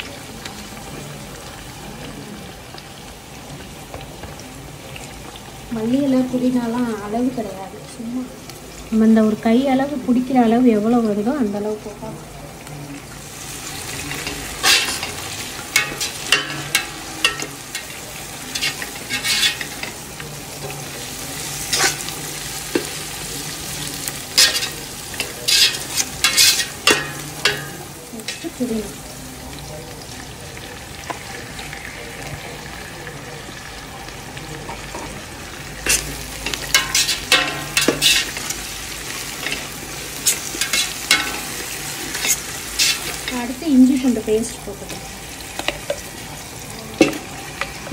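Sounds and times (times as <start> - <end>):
onions sizzling in oil: 0.0 - 47.9
spatula scraping steel pot: 14.1 - 20.0, 21.5 - 23.0, 24.4 - 28.6, 35.8 - 38.6, 39.4 - 43.5.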